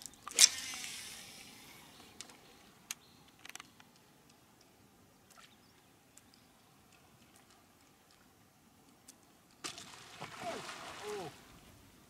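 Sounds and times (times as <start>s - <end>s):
fishing rod swing click: 0.3s - 1.2s
fishing line running off reel: 0.3s - 2.0s.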